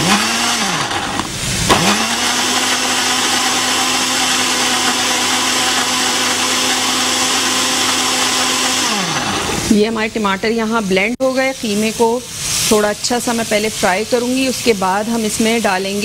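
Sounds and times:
blender motor running: 0.0 - 9.8.

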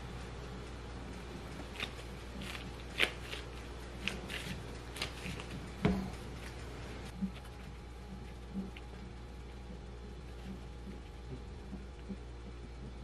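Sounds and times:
gloved hands rustling: 1.6 - 8.9.

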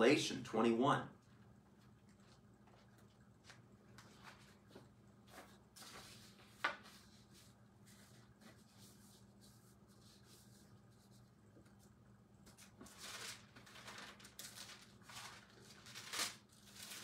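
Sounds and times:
pages leafed through: 5.3 - 8.1, 12.5 - 17.0.

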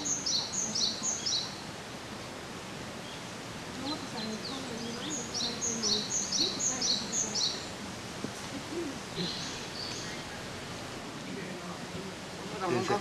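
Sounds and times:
thin bird calls: 0.0 - 1.7, 2.9 - 7.8, 8.8 - 10.6
songbird singing: 0.0 - 13.0.

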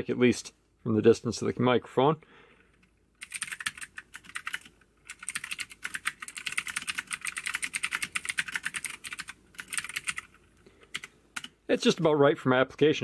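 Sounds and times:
mechanical keyboard typing: 3.2 - 11.6.

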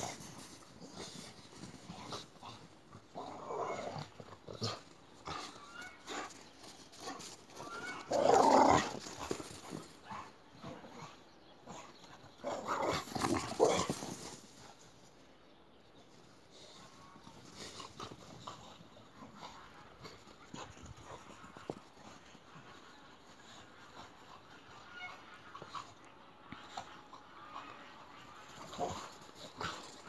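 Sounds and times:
dogs growling: 0.0 - 14.4, 25.5 - 30.0.

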